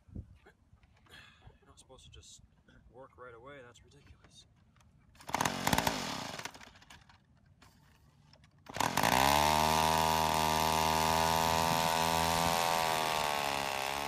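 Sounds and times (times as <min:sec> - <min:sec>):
small two-stroke engine running: 0:05.2 - 0:07.0, 0:08.7 - 0:14.0
electric starter whirring: 0:05.2 - 0:07.1, 0:08.7 - 0:14.0.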